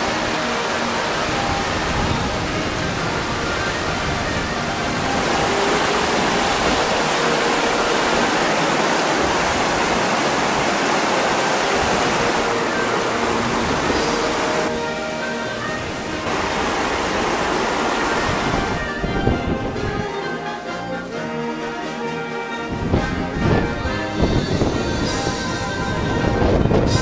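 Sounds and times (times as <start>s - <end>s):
creek rushing over rocks: 0.0s - 20.0s.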